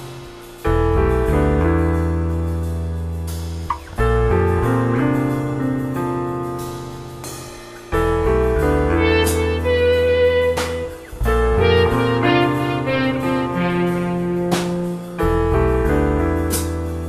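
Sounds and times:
keyboard chords over bass: 8.1s - 17.0s.

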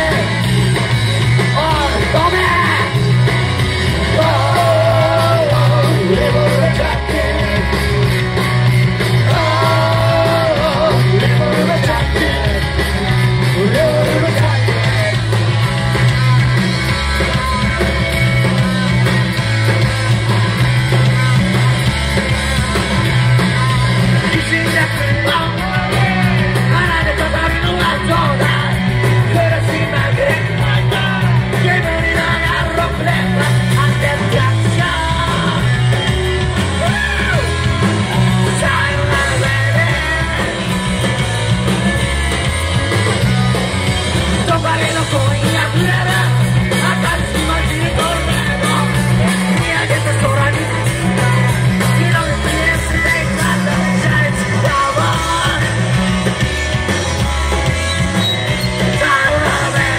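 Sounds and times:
bass line: 0.0s - 59.9s
electric guitar: 0.0s - 59.9s
shouted singing: 3.8s - 16.4s, 23.7s - 41.4s, 56.9s - 59.9s.

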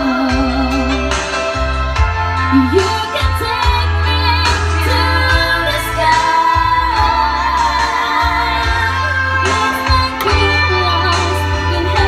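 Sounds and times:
woman singing into a microphone: 0.0s - 1.5s, 2.3s - 12.0s
keyboard chords: 0.0s - 12.0s.

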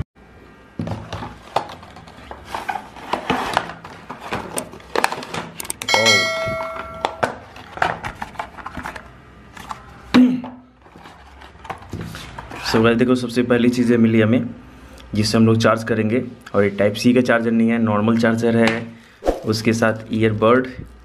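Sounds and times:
packaging rustling and clicking: 1.0s - 5.9s, 6.8s - 10.0s, 10.8s - 12.7s
bright bell chime: 5.9s - 7.3s
short whoosh: 19.2s - 19.6s.

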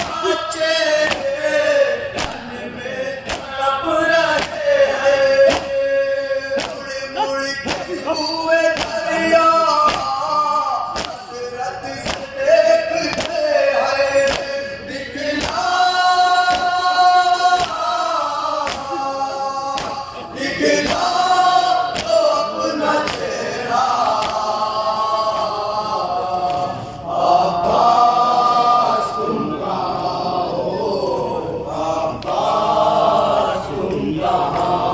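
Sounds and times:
men chanting in chorus: 0.0s - 34.9s
hands slapping on chests: 1.0s - 1.3s, 2.2s - 2.4s, 4.4s - 4.6s, 6.6s - 6.8s, 8.7s - 9.0s, 11.0s - 11.2s, 12.0s - 12.3s, 13.1s - 13.4s, 17.6s - 17.8s, 18.6s - 18.9s, 19.8s - 20.0s, 21.9s - 22.2s, 23.0s - 23.3s, 24.1s - 24.5s.

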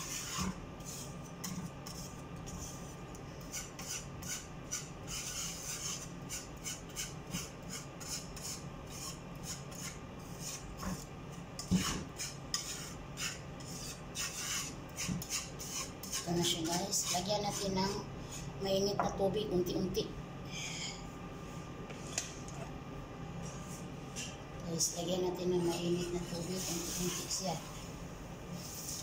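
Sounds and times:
whisk scraping metal pan: 0.0s - 18.5s, 25.4s - 27.6s.

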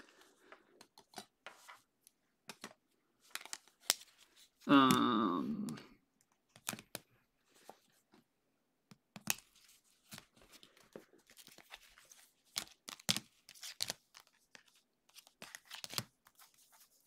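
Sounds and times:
plastic sleeves rustling: 0.0s - 4.7s, 9.2s - 17.0s.

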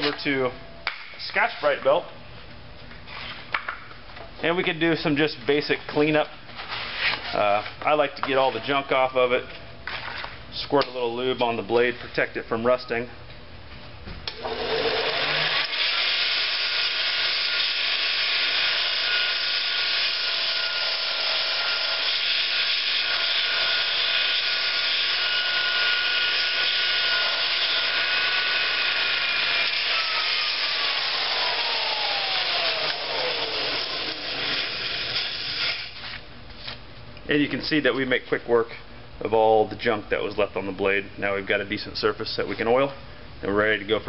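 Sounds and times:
bench grinder whine: 14.3s - 36.2s.

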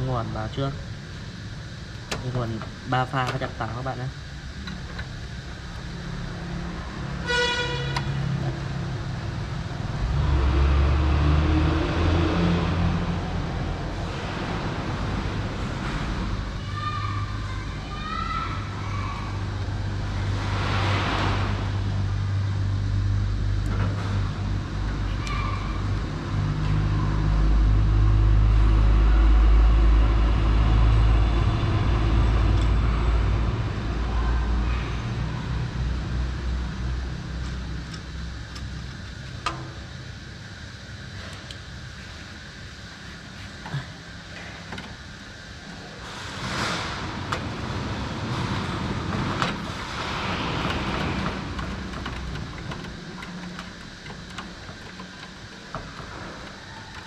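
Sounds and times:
motor vehicle engine rumble: 25.8s - 57.0s.

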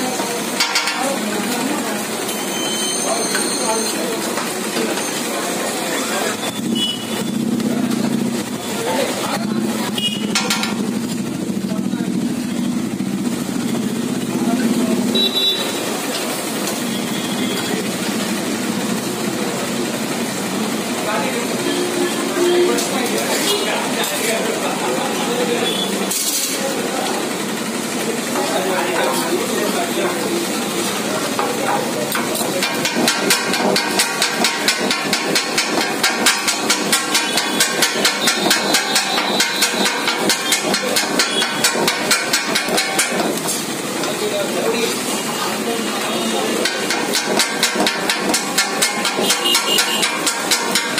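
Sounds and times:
metal spatula scraping griddle: 26.1s - 26.6s, 31.4s - 43.7s.

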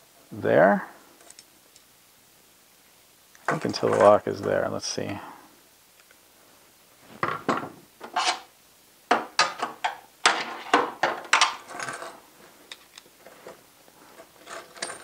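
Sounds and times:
small metal clicks and rattles: 11.0s - 15.0s.

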